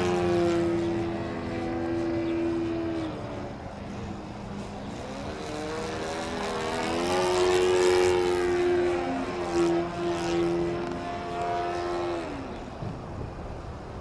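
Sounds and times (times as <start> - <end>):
model airplane propeller drone: 0.0 - 14.0.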